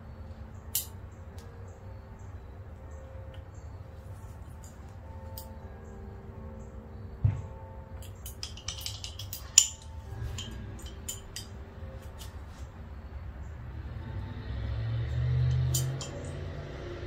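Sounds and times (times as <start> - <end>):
faint steady hum: 0.0 - 17.0
metal tool clinking: 8.0 - 12.6, 15.5 - 16.4.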